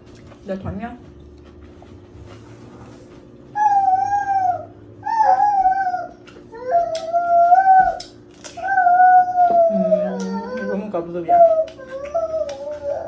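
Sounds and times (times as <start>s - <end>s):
long wavering howls: 3.5s - 13.0s.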